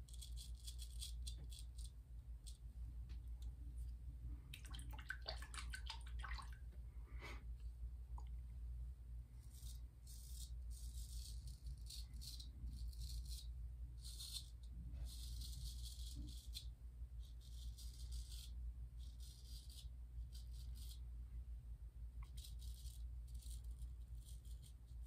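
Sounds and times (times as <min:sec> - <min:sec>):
steady low hum: 0:00.0 - 0:25.0
razor scraping stubble: 0:09.4 - 0:14.5.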